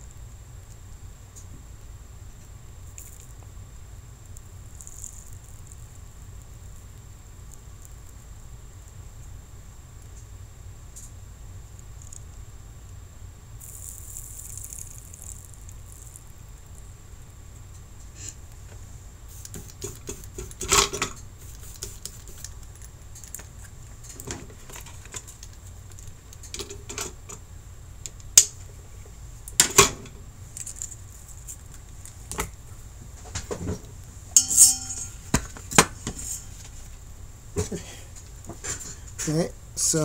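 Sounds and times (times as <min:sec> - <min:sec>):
metal tools clinking on workbench: 0:34.4 - 0:35.4.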